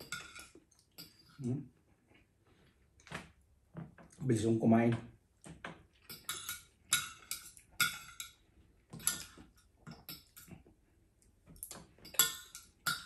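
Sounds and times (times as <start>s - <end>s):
cutlery scraping ceramic plate: 0.0s - 1.4s, 6.1s - 8.4s, 9.0s - 10.5s.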